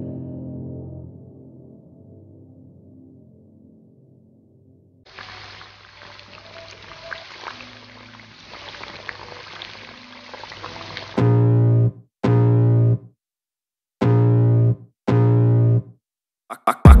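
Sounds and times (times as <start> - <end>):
hot oil sizzling and popping: 5.1 - 11.3.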